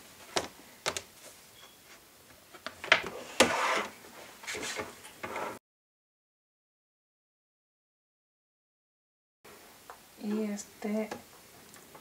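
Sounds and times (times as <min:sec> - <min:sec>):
plastic pads scraping: 0:02.8 - 0:05.6.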